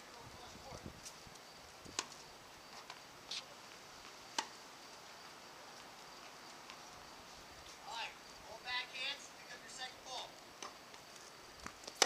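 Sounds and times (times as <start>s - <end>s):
tennis balls struck by rackets: 1.9s - 2.2s, 4.3s - 4.6s, 10.6s - 10.9s.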